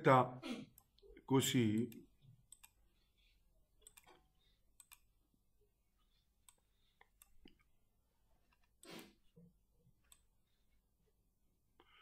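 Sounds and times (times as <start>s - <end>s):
computer mouse clicks: 1.7s - 2.8s, 3.8s - 4.2s, 4.8s - 5.1s, 6.4s - 7.7s, 10.0s - 10.3s.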